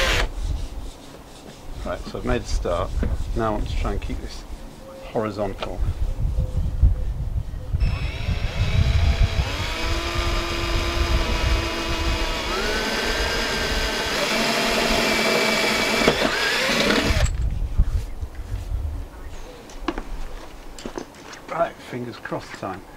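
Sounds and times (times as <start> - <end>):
cordless drill whining: 0.0 - 0.3, 7.8 - 17.4.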